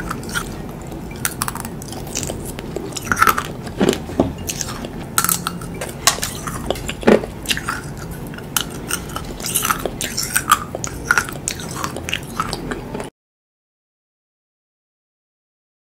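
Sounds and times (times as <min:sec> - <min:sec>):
fake fingernails crunching when chewed: 0:00.0 - 0:13.1.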